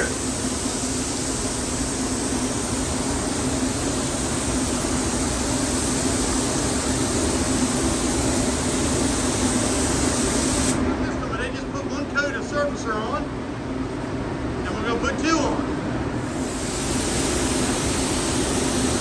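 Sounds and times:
spray gun hissing: 0.0 - 10.8, 16.2 - 19.0.

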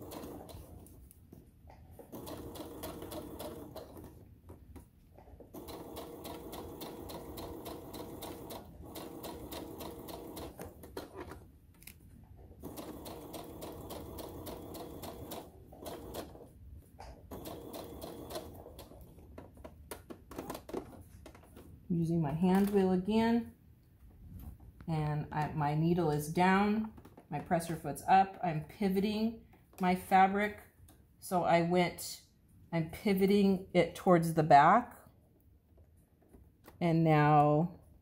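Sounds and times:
sewing machine stitching: 0.0 - 1.0, 2.0 - 4.2, 5.4 - 11.4, 12.6 - 19.3.

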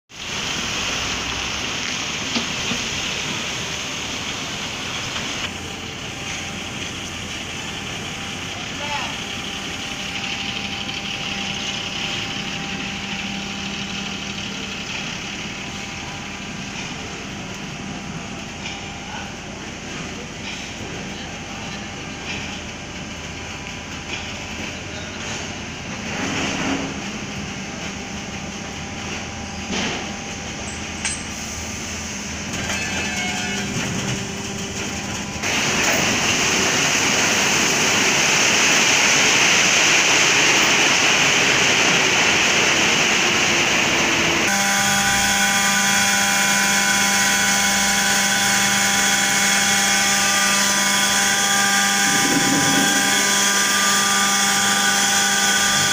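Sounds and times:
low machinery noise with knocks: 28.9 - 31.3, 51.1 - 54.8
hydraulic power pack whining: 40.4 - 55.9.

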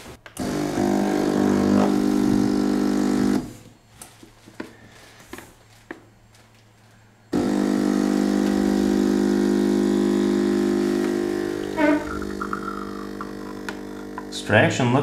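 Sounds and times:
espresso machine pump buzzing: 0.4 - 3.7, 7.3 - 15.0.

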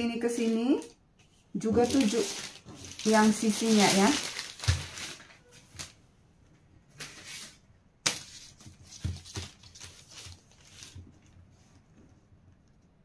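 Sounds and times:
paper rustling: 1.6 - 6.0, 7.0 - 12.2.

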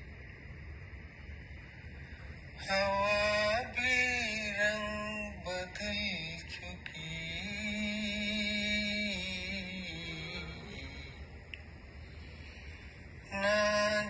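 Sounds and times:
person singing long sliding notes: 2.6 - 11.4, 13.2 - 14.0.

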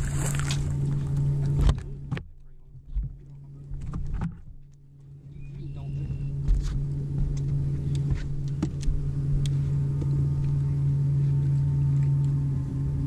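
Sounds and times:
electric trolling motor humming: 0.0 - 2.4, 3.1 - 13.0.

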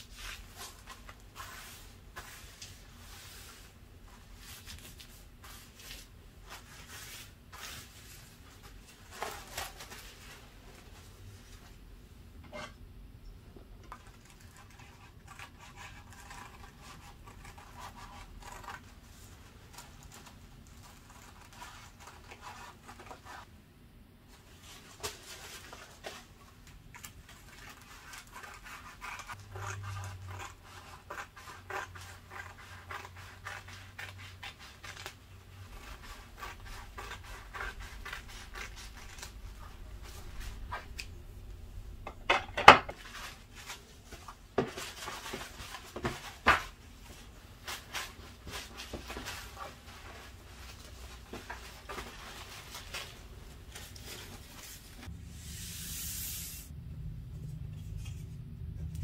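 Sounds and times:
paper rustling and crinkling: 0.0 - 11.8, 24.3 - 31.2, 42.9 - 55.1.

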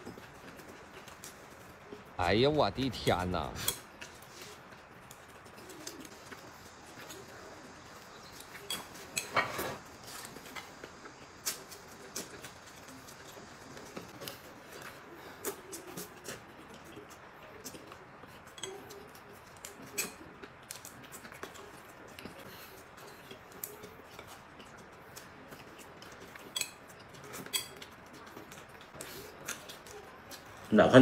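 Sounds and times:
man chewing and lip smacking: 10.0 - 30.7
chopsticks clicking on dishes: 18.5 - 21.8, 25.6 - 28.6.

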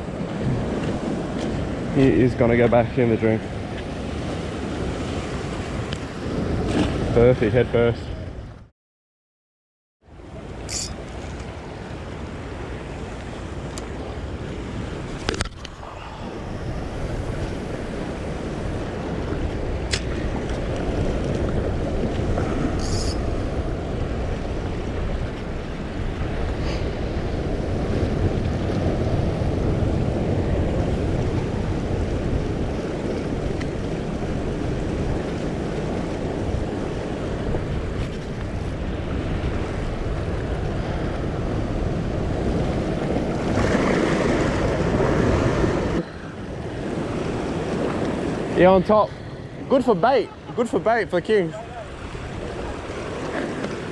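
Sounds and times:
wind buffeting microphone: 0.0 - 8.7, 10.4 - 53.9
waves washing against rocks: 16.6 - 49.1, 49.7 - 53.9.

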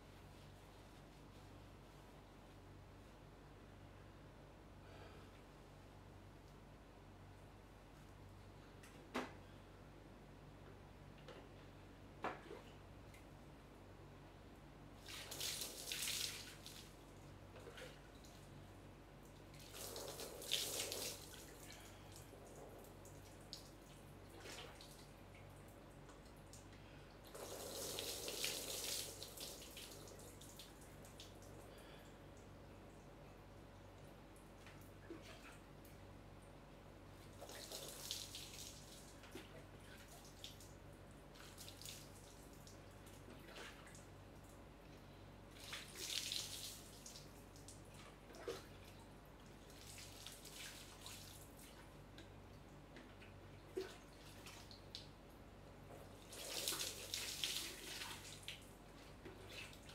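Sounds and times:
water poured and splashing: 15.0 - 17.0, 19.6 - 21.9, 27.3 - 31.4, 37.3 - 40.6, 45.6 - 48.8, 49.7 - 51.6, 56.2 - 58.7
water dripping on floor: 27.3 - 31.6.

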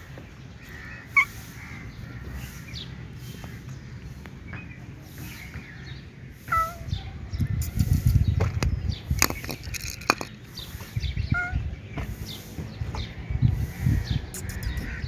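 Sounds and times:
cats meowing: 6.4 - 7.2, 11.2 - 11.8.

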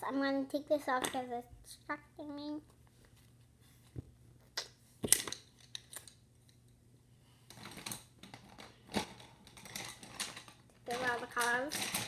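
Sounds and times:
wooden pencils clicking and knocking: 7.5 - 12.0.

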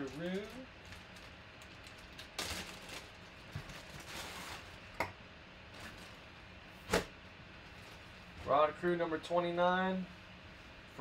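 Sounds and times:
plastic bag crinkling: 0.0 - 4.9.

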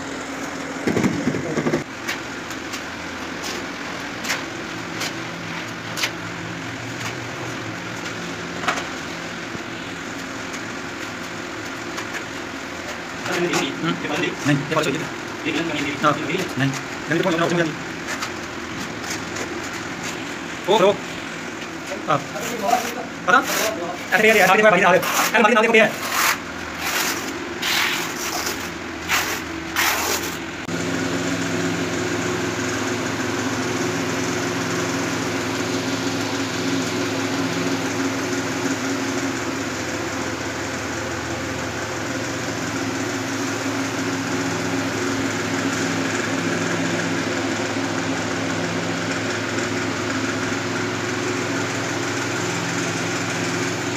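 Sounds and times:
trowel scraping adhesive: 22.4 - 30.4.

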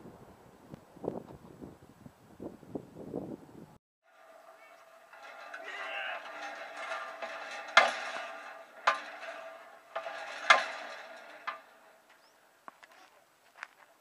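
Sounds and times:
hand pump metal clanks: 4.1 - 12.9.

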